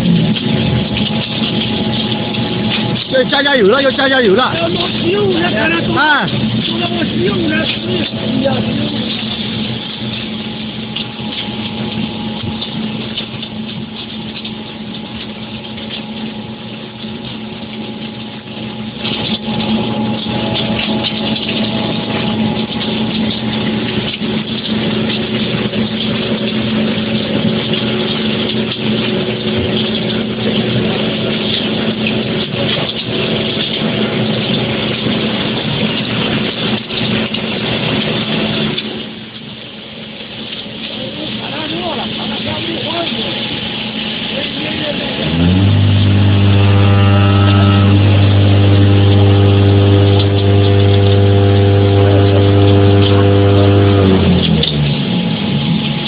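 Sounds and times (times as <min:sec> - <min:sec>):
mechanical clatter and knocks: 0:00.0 - 0:56.0
electric motor hum: 0:17.4 - 0:35.4, 0:43.4 - 0:56.0.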